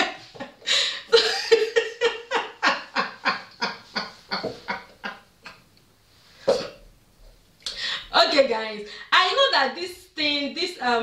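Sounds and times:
woman laughing: 0.0 - 5.6.

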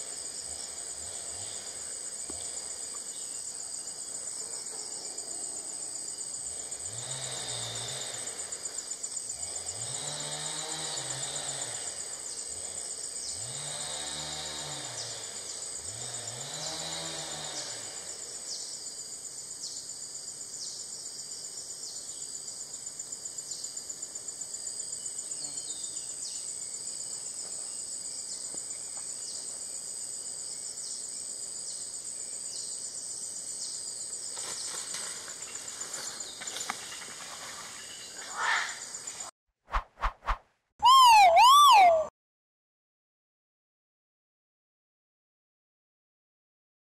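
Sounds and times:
low rising and falling calls: 40.0 - 42.1.

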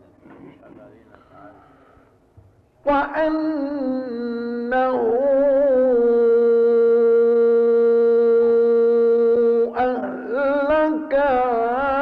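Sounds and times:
man chanting melodically: 2.8 - 12.0.

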